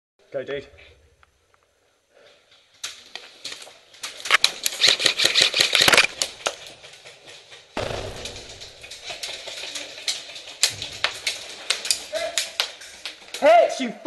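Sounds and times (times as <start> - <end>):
airsoft guns firing: 7.8 - 10.0.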